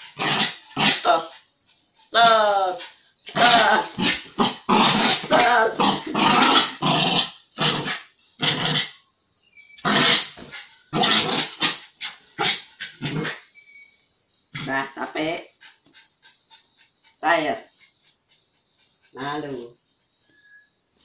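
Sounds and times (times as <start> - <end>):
small dog growling and barking: 0.0 - 1.3, 3.3 - 9.0, 9.8 - 13.5.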